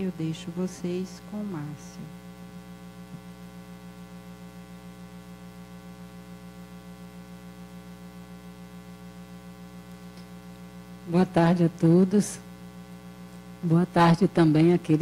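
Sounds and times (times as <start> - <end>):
electrical mains hum: 0.0 - 15.0
faint click: 9.9 - 10.3.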